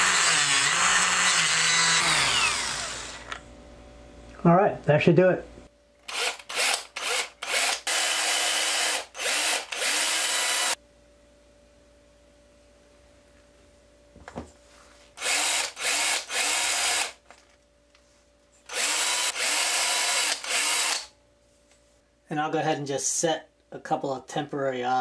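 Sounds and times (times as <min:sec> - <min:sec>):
cordless drill drilling into wood: 0:00.0 - 0:03.3, 0:06.1 - 0:10.8, 0:15.2 - 0:17.2, 0:18.7 - 0:21.1.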